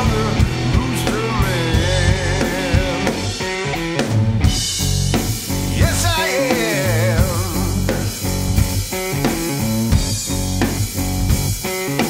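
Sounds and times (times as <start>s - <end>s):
man singing: 0.0s - 3.4s, 5.7s - 8.2s
drum kit: 0.0s - 12.0s
guitar: 0.0s - 12.0s.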